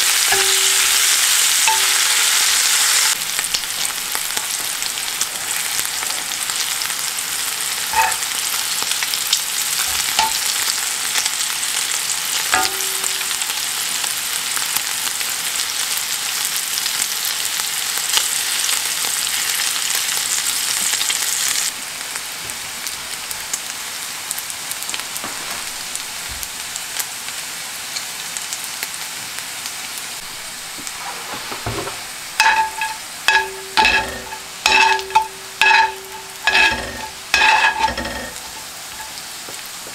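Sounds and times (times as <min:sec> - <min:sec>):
meat sizzling in a skillet: 0:00.0 - 0:39.9
utensil scraping a pan: 0:07.9 - 0:08.4, 0:30.2 - 0:39.2.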